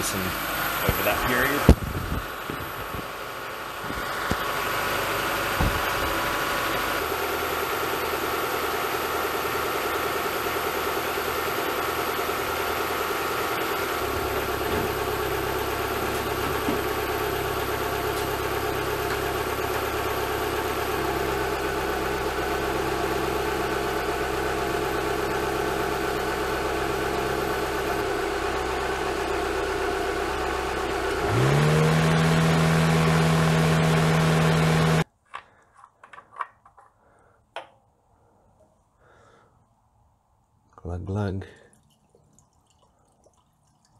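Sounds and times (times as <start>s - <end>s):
car engine idling: 0.0s - 35.1s.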